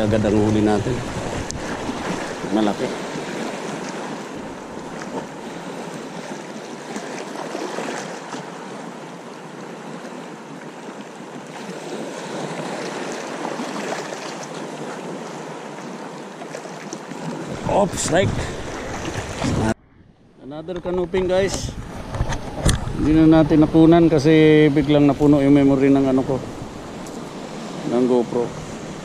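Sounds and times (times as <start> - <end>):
wind buffeting microphone: 0.0 - 3.4, 17.4 - 29.0
small waves lapping: 0.0 - 20.2, 20.9 - 29.0.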